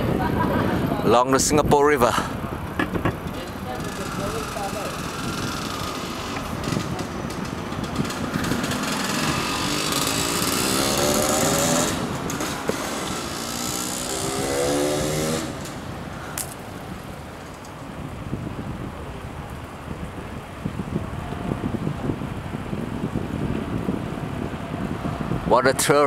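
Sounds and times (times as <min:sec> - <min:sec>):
wind: 0:00.0 - 0:26.0
bike tyres rolling over paving: 0:02.3 - 0:25.4
engine revving: 0:08.0 - 0:15.8.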